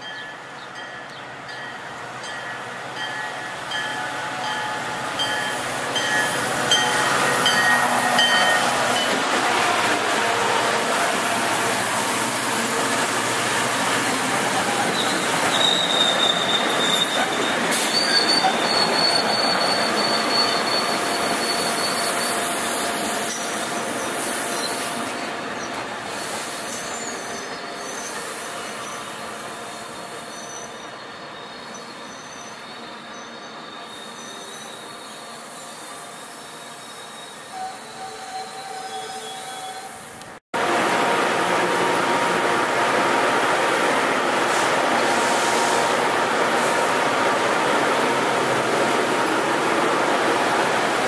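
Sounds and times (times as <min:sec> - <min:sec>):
train rumbling past: 0:00.0 - 0:51.0
train wheels squealing: 0:02.4 - 0:09.2, 0:10.8 - 0:40.2.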